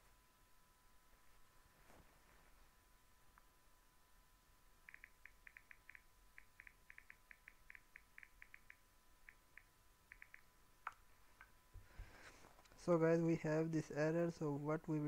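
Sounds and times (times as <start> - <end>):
click: 4.9 - 11.5.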